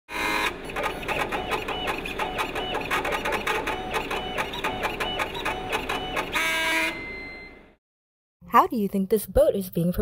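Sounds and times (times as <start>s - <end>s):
motors whirring in pulses: 0.1s - 7.1s
machine whine: 0.1s - 7.8s.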